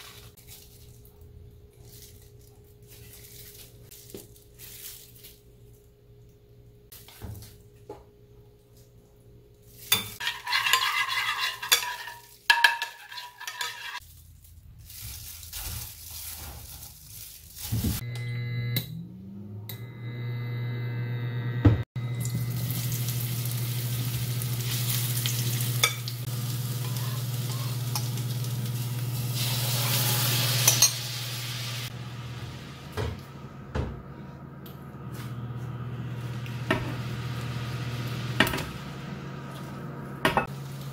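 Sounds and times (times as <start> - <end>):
mushrooms sizzling in oil: 22.0 - 33.4, 35.8 - 40.9.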